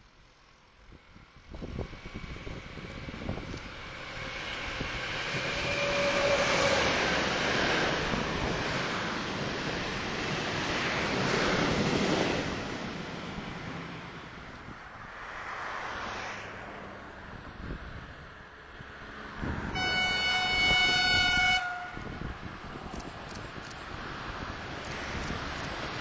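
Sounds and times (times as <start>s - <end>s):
train wheels rumbling on rails: 1.4s - 14.7s, 19.7s - 26.0s.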